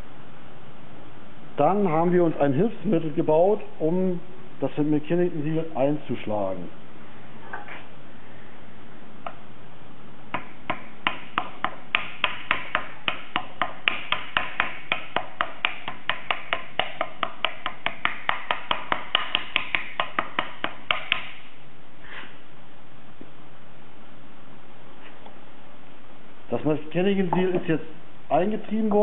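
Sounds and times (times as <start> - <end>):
rapid light tapping: 10.3 - 21.4.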